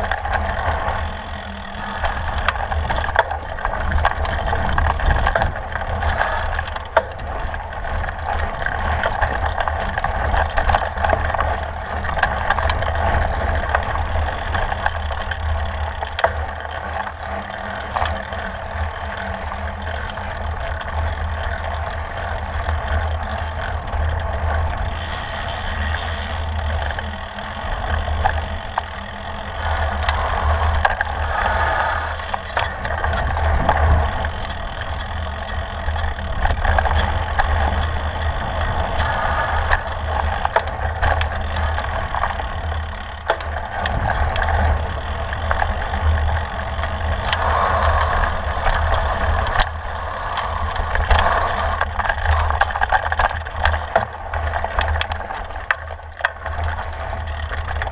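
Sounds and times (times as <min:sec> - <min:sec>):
bike rattling: 0:00.0 - 0:57.9
wind buffeting microphone: 0:18.8 - 0:55.7.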